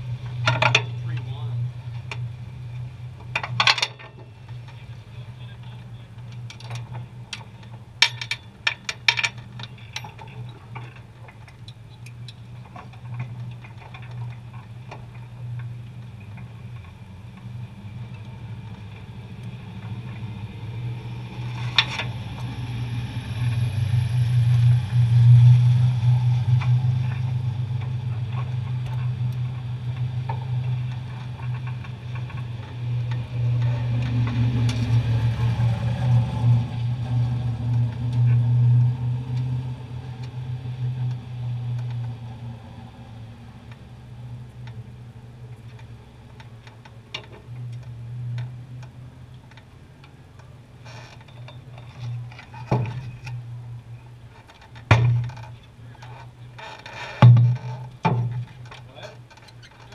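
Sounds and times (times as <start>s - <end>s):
race car engine idling: 0.0s - 47.6s.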